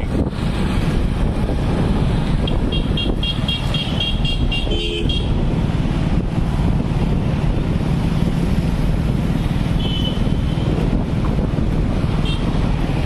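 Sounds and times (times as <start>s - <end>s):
vehicle road and engine noise: 0.0s - 13.0s
wind buffeting microphone: 0.0s - 13.0s
car horn toots: 2.5s - 5.4s.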